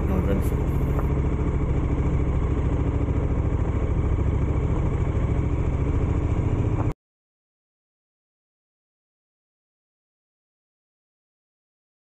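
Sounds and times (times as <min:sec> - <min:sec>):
motorcycle engine running at low revs: 0:00.0 - 0:07.0.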